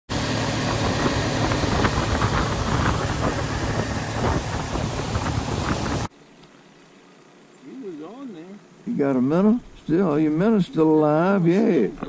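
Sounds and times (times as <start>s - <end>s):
water noise: 0.1s - 6.1s
outboard motor running: 0.1s - 12.0s
wind on microphone: 0.2s - 6.1s.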